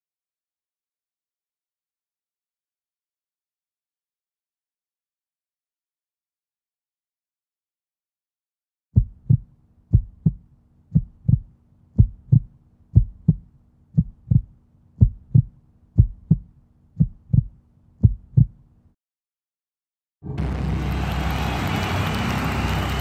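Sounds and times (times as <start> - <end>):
heartbeat thumps: 9.0 - 18.6
loud wash of noise: 20.3 - 23.0.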